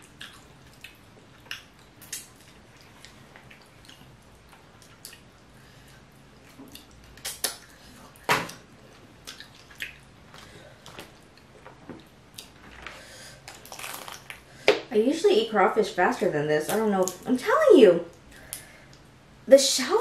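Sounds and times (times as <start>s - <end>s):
wet sucking and squishing: 13.4s - 14.4s.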